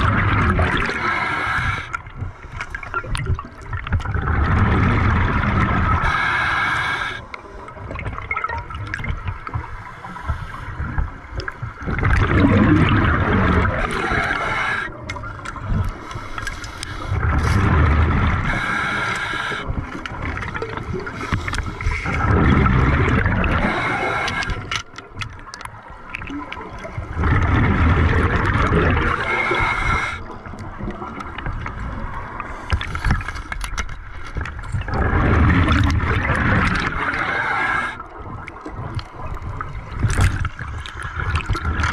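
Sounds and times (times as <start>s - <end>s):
diver exhaling bubbles: 0.0s - 2.0s, 4.0s - 7.3s, 11.8s - 16.0s, 17.0s - 24.7s, 27.0s - 31.1s, 34.8s - 40.5s.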